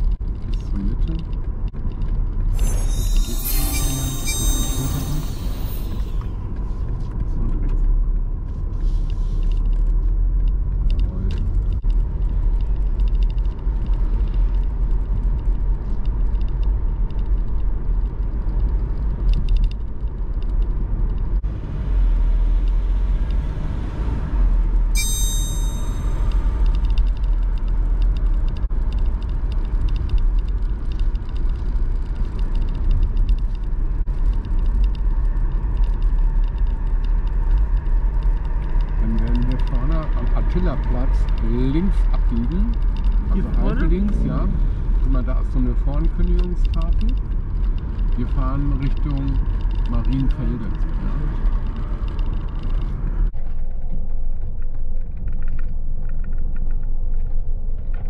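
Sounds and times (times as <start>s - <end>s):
car tyres and engine rumble: 0.0s - 2.8s, 5.6s - 25.0s, 25.7s - 58.0s
brief high ringing: 2.6s - 6.4s, 25.0s - 26.3s.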